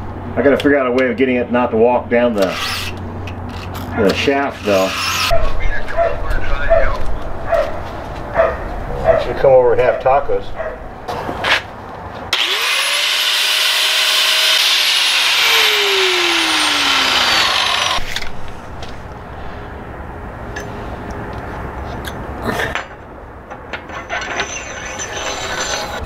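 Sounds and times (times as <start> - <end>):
angle grinder grinding steel: 2.4 - 5.3, 12.3 - 18.3.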